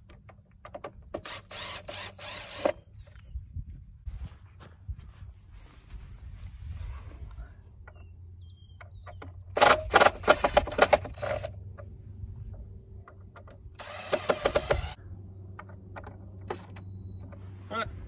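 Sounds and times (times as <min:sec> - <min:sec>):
power driver rapid knocking: 0:13.8 - 0:15.0.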